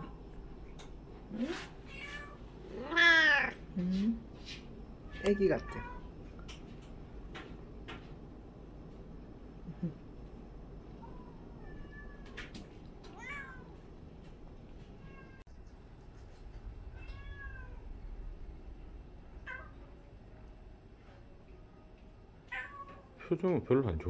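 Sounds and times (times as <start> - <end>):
cat meowing: 1.9 - 3.6, 11.0 - 12.4, 13.1 - 13.7, 17.0 - 17.8.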